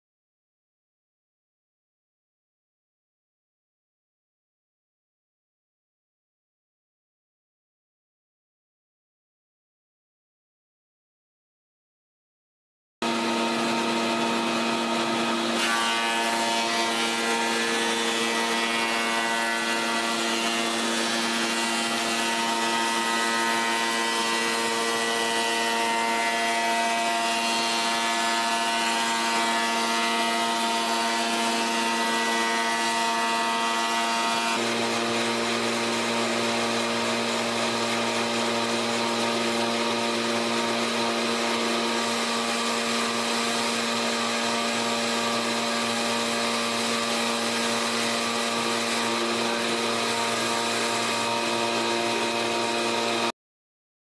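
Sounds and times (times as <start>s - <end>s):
wood molder machine running: 13.0s - 33.6s, 34.4s - 53.3s.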